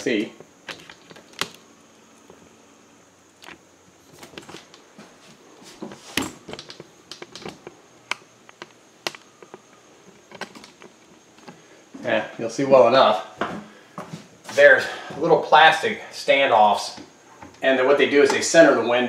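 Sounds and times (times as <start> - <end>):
footsteps: 3.4 - 6.3, 13.3 - 15.4.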